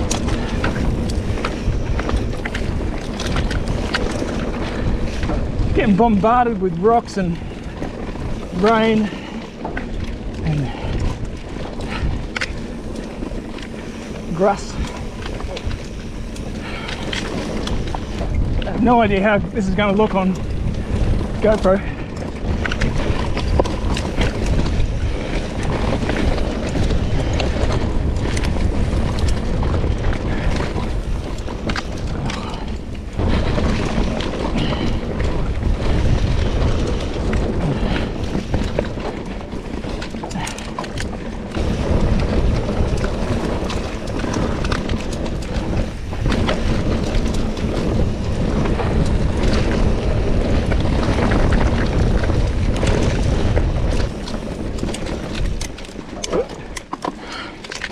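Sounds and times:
bike rattling over bumps: 0.0 - 57.9
tyres rumbling on dirt and rocks: 0.0 - 57.9
wind buffeting microphone: 0.0 - 57.9.

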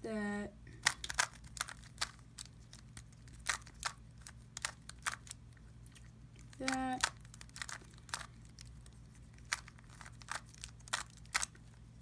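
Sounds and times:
puzzle cube clicking as turned: 0.8 - 2.6, 3.3 - 5.4, 6.5 - 8.3, 9.4 - 11.5.

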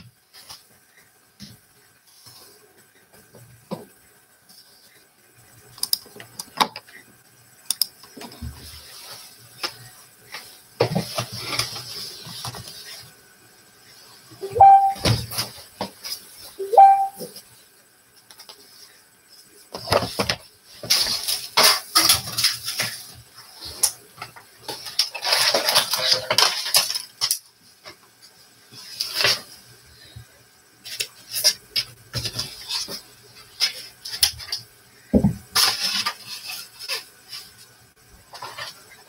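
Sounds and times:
painting supplies clinking and rustling: 19.7 - 28.0.

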